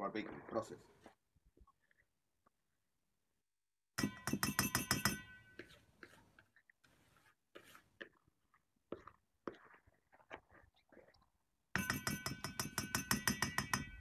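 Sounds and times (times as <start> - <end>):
utensil clinking against bowl: 4.0 - 5.4, 11.8 - 14.0
faint scrapes and knocks: 4.4 - 11.3.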